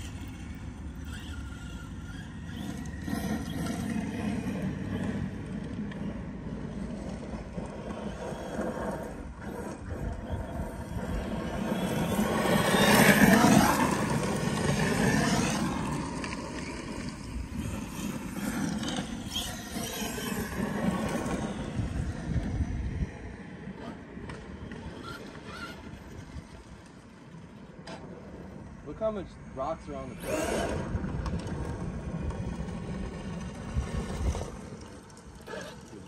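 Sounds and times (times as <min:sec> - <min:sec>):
tyres on gravel: 0:00.0 - 0:23.2
electric motor whine: 0:30.0 - 0:32.8.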